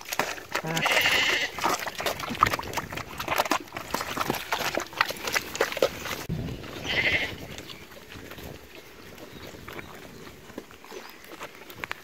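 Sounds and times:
farm animal bleating: 0.6s - 1.8s, 6.7s - 7.7s.

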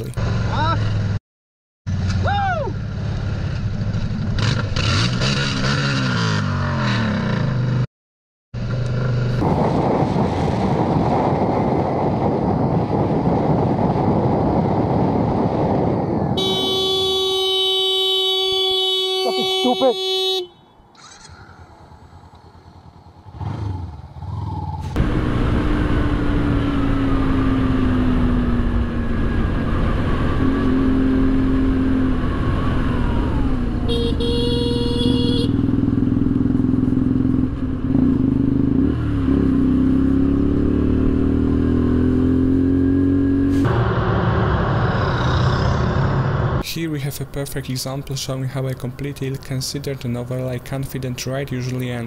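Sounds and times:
road and wind noise: 0.0s - 1.2s, 1.9s - 7.9s, 8.5s - 52.0s
motorcycle engine revving: 1.9s - 7.9s, 21.0s - 46.6s.

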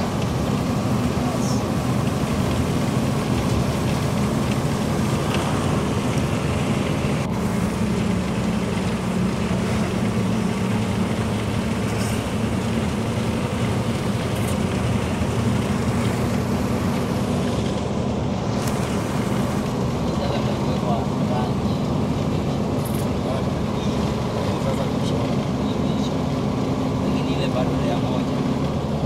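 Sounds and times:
vehicle engine and road drone: 0.0s - 29.0s.

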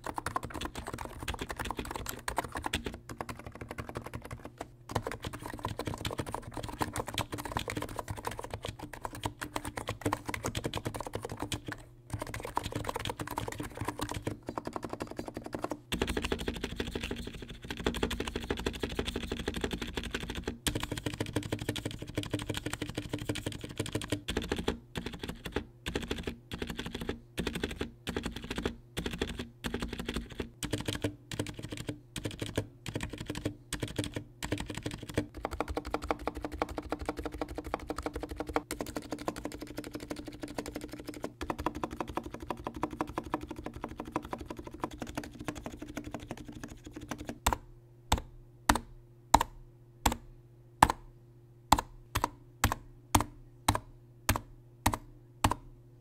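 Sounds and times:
keyboard typing: 0.0s - 50.2s, 51.7s - 55.7s.

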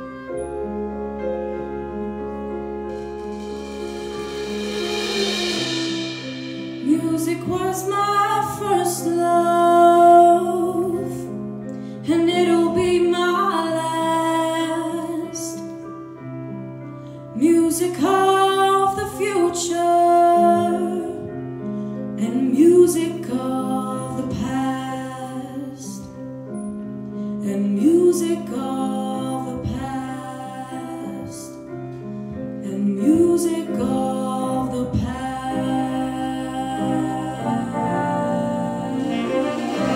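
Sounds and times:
big band playing swing: 0.0s - 9.2s, 34.9s - 39.9s.

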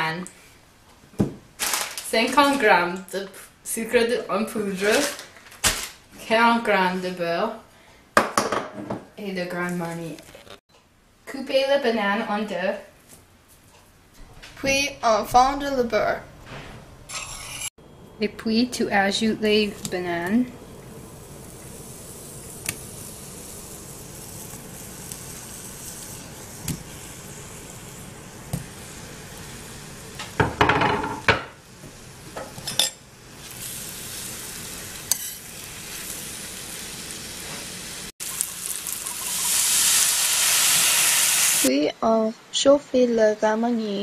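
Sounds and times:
utensil scraping pan: 16.5s - 17.7s
bananas sizzling in butter: 19.4s - 41.7s
liquor poured into hot pan: 38.2s - 41.7s.

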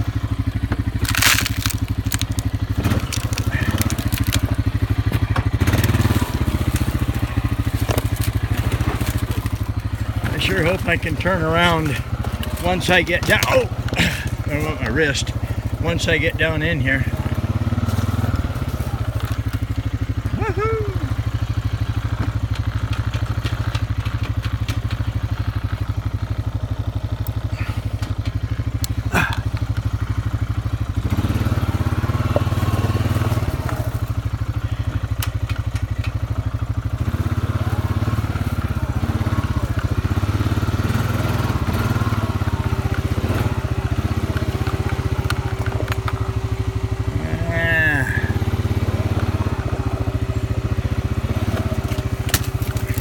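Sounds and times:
quad engine running: 0.0s - 53.0s
branches scraping against bodywork: 0.2s - 20.1s, 50.0s - 53.0s.

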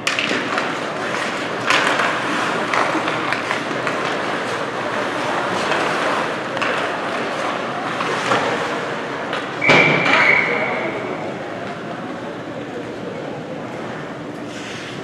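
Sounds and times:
skates scraping on ice: 0.0s - 9.2s
hockey sticks and puck knocking: 0.0s - 10.4s
murmur of voices: 0.0s - 15.0s.

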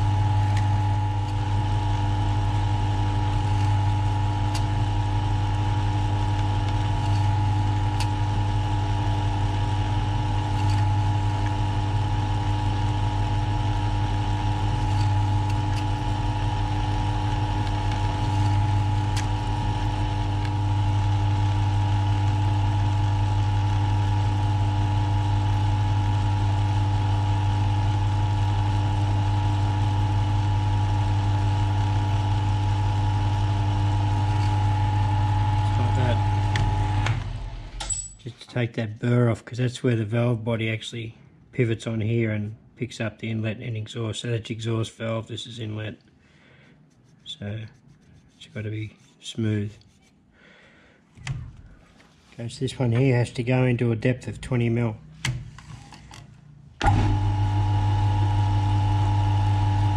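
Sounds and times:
milling machine drilling metal: 31.5s - 37.2s.

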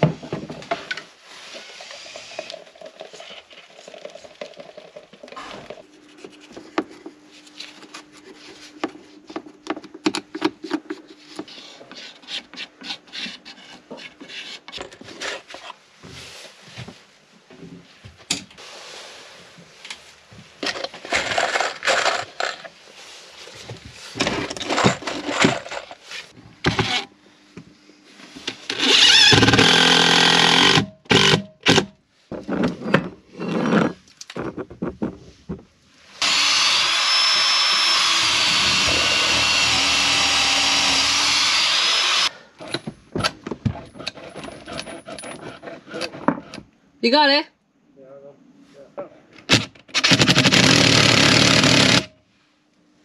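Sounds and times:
cordless drill driving screw: 28.7s - 31.8s, 36.2s - 42.3s, 50.0s - 52.1s.

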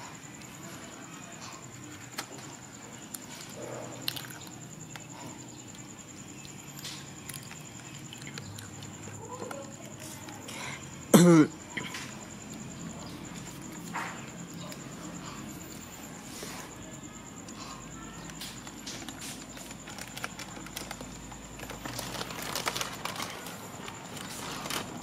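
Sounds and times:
foil snack bag crinkling: 18.3s - 25.0s.

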